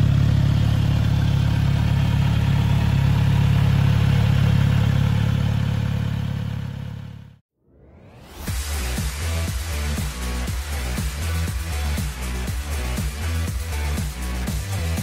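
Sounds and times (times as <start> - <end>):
motorcycle engine idling: 0.0 - 7.4.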